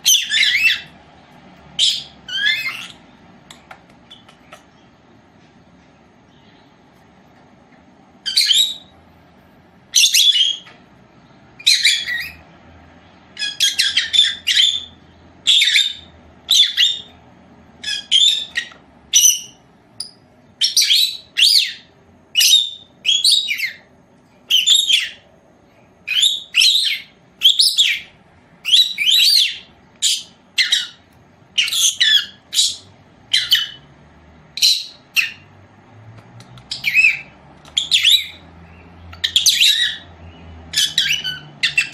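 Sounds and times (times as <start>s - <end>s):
lovebirds chirping: 0.0s - 35.6s, 36.2s - 41.9s.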